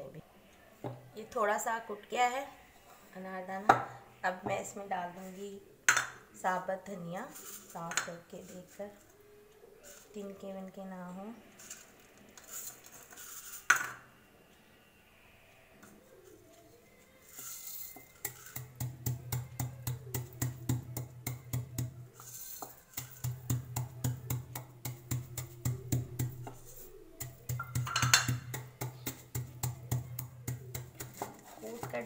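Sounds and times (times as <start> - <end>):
wooden pestle pounding seeds: 17.8 - 32.0.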